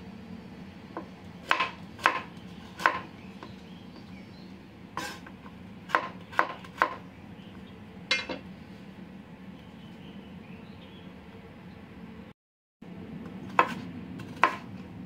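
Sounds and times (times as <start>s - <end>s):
low steady hum: 0.0s - 15.0s
knife chopping on wooden board: 1.0s - 3.1s, 5.9s - 7.0s, 13.5s - 14.7s.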